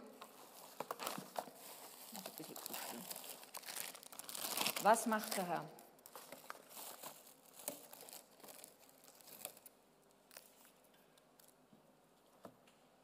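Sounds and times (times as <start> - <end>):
paper crinkling and rustling: 0.2 - 11.6.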